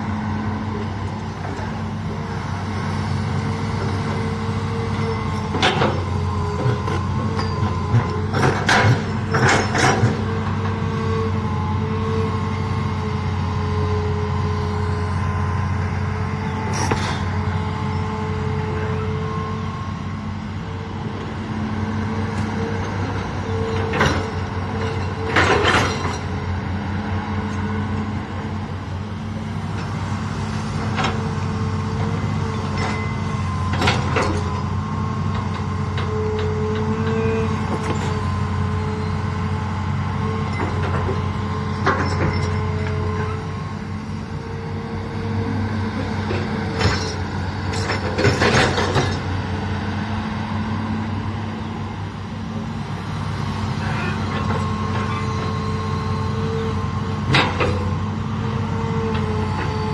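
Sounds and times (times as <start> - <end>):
excavator diesel engine with whine: 0.0 - 59.9.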